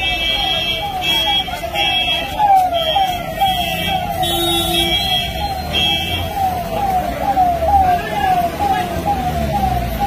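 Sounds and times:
police siren sweeping: 0:00.0 - 0:10.0.

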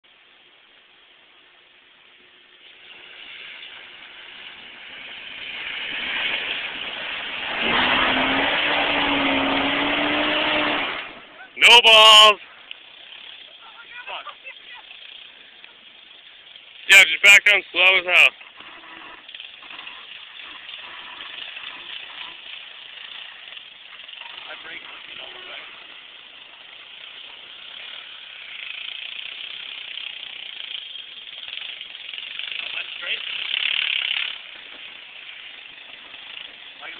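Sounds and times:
pickup truck engine revving: 0:02.8 - 0:11.4.

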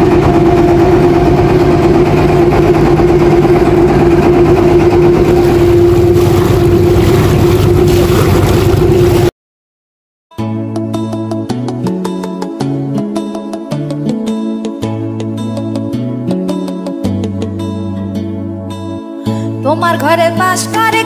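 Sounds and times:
boat engine droning: 0:00.0 - 0:09.3.

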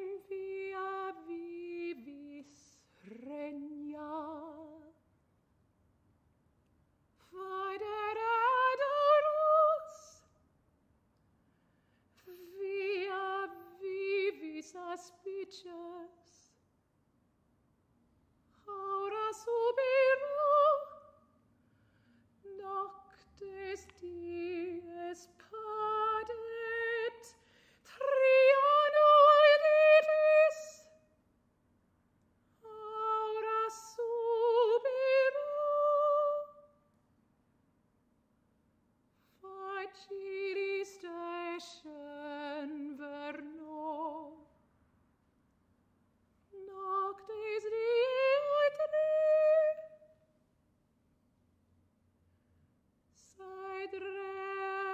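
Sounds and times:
soprano singing unaccompanied: 0:00.0 - 0:05.0, 0:07.2 - 0:10.2, 0:12.2 - 0:16.6, 0:18.6 - 0:21.2, 0:22.5 - 0:31.0, 0:32.6 - 0:36.8, 0:39.4 - 0:44.5, 0:46.5 - 0:50.1, 0:53.2 - 0:54.9.

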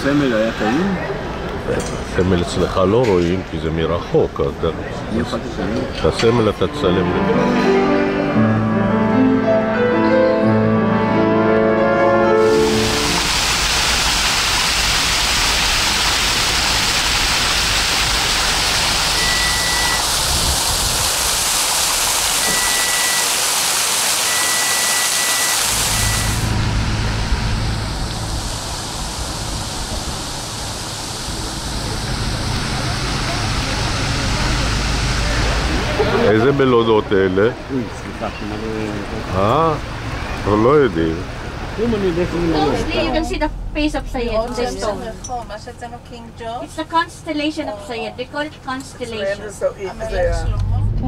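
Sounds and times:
background music: 0:06.5 - 0:13.3
fountain jets splashing: 0:12.2 - 0:43.5
low rumble: 0:26.1 - 0:35.9, 0:42.8 - 0:46.2, 0:50.1 - 0:51.0.

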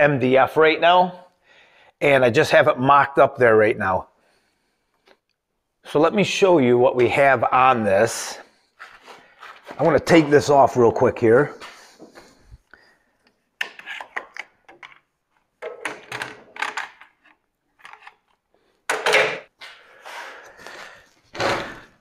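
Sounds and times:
knocks and clunks of handling metal: 0:18.9 - 0:19.5.

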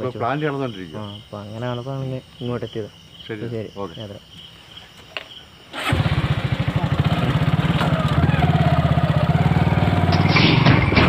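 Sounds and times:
motorcycle engine running: 0:05.8 - 0:11.0.

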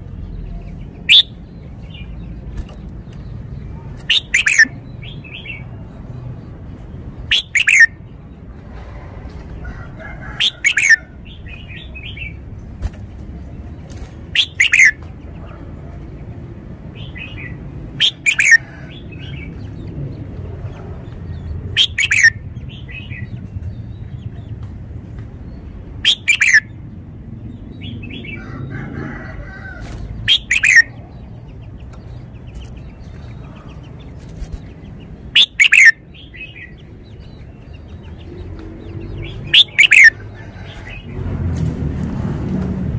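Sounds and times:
bird singing: 0:00.0 - 0:08.4, 0:10.2 - 0:12.6, 0:13.5 - 0:15.6, 0:16.9 - 0:24.7, 0:25.3 - 0:41.1
soft bird chattering: 0:00.4 - 0:05.7, 0:07.2 - 0:08.0, 0:10.4 - 0:12.4, 0:13.9 - 0:16.1, 0:17.0 - 0:19.4, 0:20.7 - 0:24.6, 0:25.6 - 0:26.8, 0:30.3 - 0:41.0.

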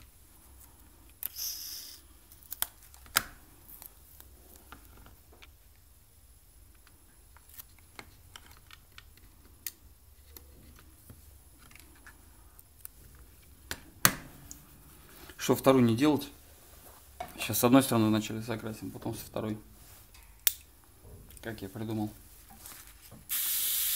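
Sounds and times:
masking tape pulled from dispenser: 0:01.2 - 0:02.7.

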